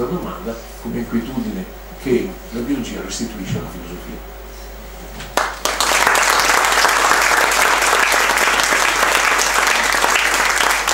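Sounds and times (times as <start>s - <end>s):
audience applauding: 5.4s - 10.9s.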